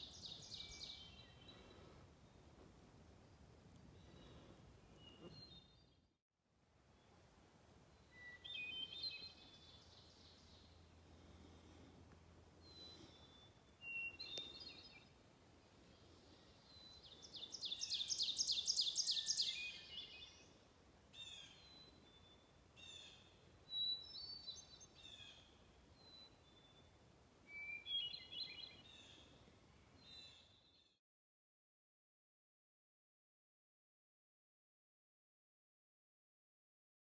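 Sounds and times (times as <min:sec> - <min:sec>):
songbirds singing: 0:00.0 - 0:02.6, 0:03.2 - 0:06.1, 0:07.8 - 0:31.0.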